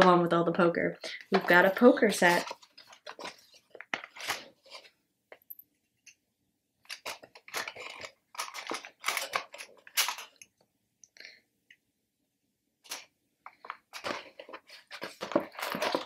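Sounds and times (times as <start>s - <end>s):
cardboard packaging rustling: 1.3s - 5.0s, 6.9s - 10.4s, 12.9s - 16.0s.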